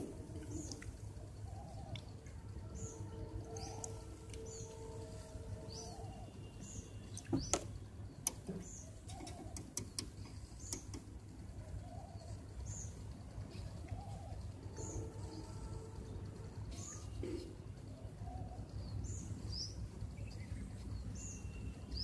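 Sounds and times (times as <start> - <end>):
low steady hum: 0.0 - 22.0
sharp clicks: 9.2 - 11.1.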